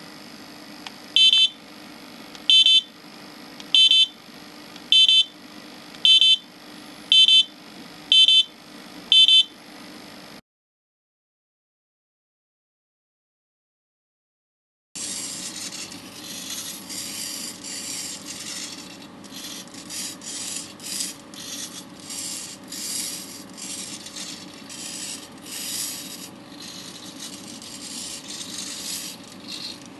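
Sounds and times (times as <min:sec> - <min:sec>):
small servos whirring: 0:15.0 - 0:29.9
steady hum: 0:15.0 - 0:29.9.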